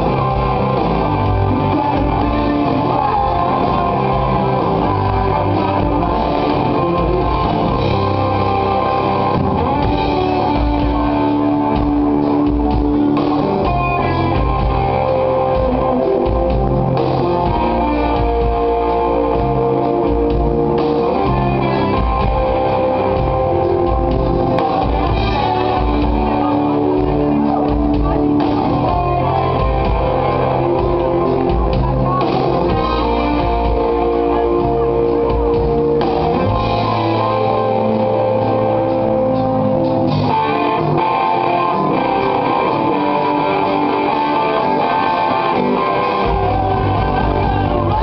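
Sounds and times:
bass guitar: 0:00.0 - 0:48.0
drum kit: 0:00.0 - 0:48.0
electric guitar: 0:00.0 - 0:48.0
keyboards: 0:00.0 - 0:48.0.

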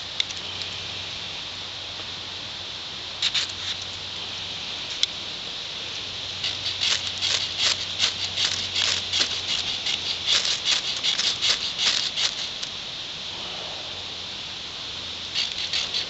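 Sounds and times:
striker scraping fire steel: 0:03.2 - 0:04.0, 0:06.4 - 0:13.6, 0:15.3 - 0:16.0.

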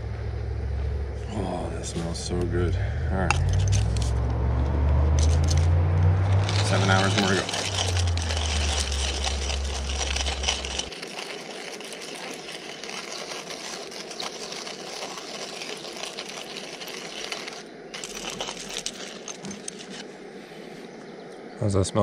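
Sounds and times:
low hum: 0:00.0 - 0:21.5
coffee grinder grinding beans: 0:03.3 - 0:20.0.

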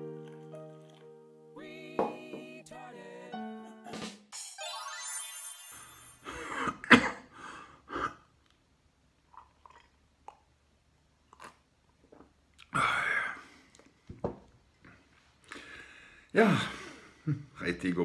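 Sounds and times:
electronic sweep jingle: 0:04.4 - 0:06.3
man coughing and clearing throat: 0:06.3 - 0:07.3
drinking from a mug: 0:09.3 - 0:10.5.

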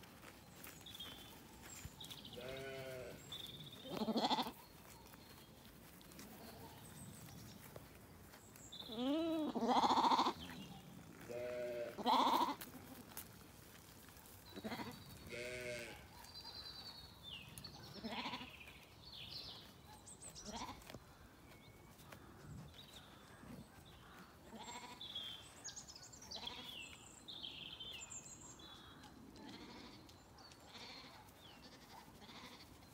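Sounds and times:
lambs bleating: 0:02.4 - 0:03.2, 0:03.8 - 0:04.6, 0:08.9 - 0:10.6, 0:11.2 - 0:12.7, 0:14.6 - 0:16.0, 0:18.0 - 0:18.5, 0:24.5 - 0:25.0, 0:30.7 - 0:32.8.

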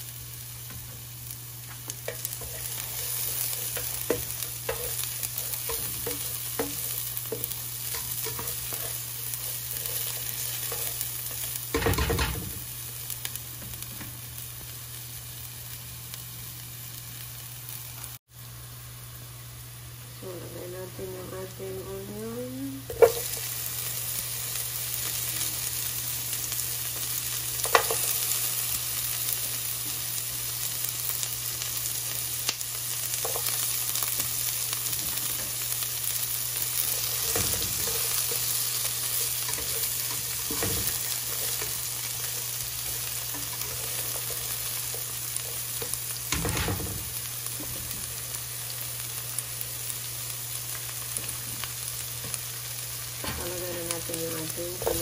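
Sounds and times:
onion sizzling in oil: 0:00.0 - 0:55.0
spatula scraping pan: 0:54.6 - 0:55.0.

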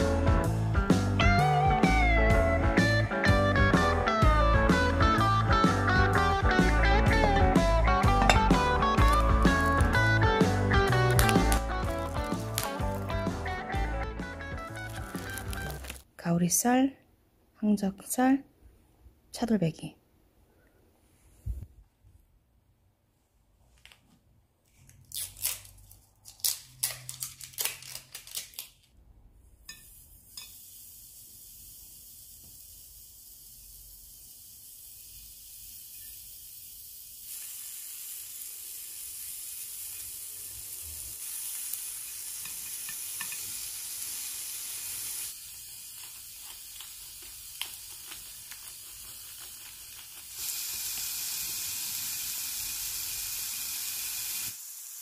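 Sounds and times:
meat sizzling on grill: 0:06.2 - 0:16.0, 0:29.7 - 0:55.0.

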